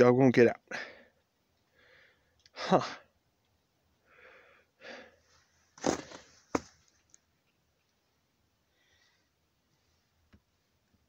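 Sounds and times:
rustling and handling noise: 0:05.3 - 0:07.2.

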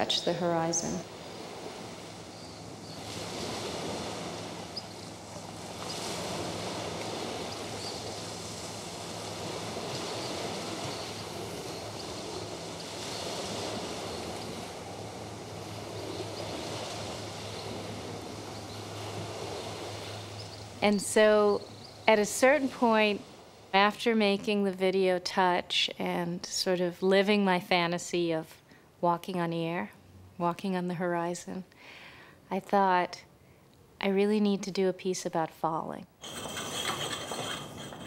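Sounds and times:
ocean surf washing onto beach: 0:00.0 - 0:20.9.

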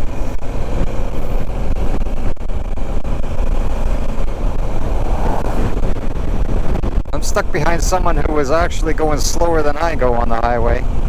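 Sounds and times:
motorcycle engine: 0:00.0 - 0:07.2
truck passing: 0:00.0 - 0:11.0
tyre noise on wet road: 0:00.0 - 0:11.0
wind rush on microphone: 0:00.0 - 0:11.0.

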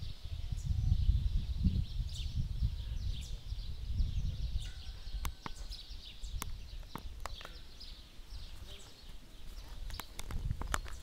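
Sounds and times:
low rumble on microphone: 0:00.0 - 0:07.2
small birds chirping: 0:00.0 - 0:11.0.

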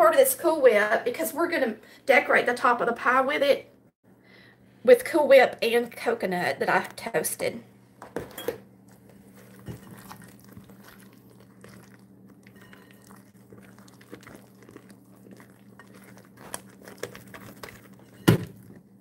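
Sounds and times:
spatula scraping and stirring: 0:08.9 - 0:19.0.

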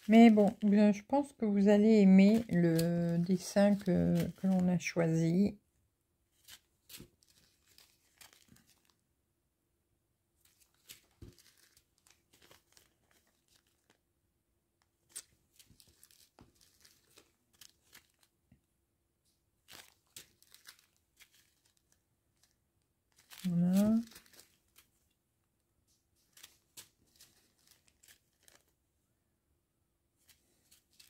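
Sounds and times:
plastic bags crinkling: 0:00.0 - 0:01.1, 0:02.0 - 0:05.0, 0:06.4 - 0:08.9, 0:10.4 - 0:14.0, 0:15.1 - 0:18.3, 0:19.6 - 0:24.9, 0:26.2 - 0:28.7.

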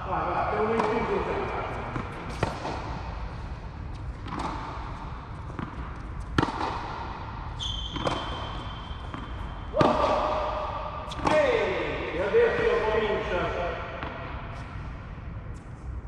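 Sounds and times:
ball bouncing on court: 0:00.6 - 0:03.1, 0:03.9 - 0:11.8, 0:13.9 - 0:14.7
rackets striking tennis ball: 0:00.6 - 0:13.0.

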